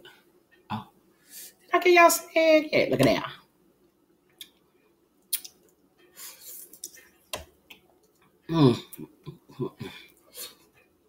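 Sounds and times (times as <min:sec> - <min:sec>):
wet chewing and mouth smacks: 0:05.2 - 0:05.8, 0:06.6 - 0:07.0.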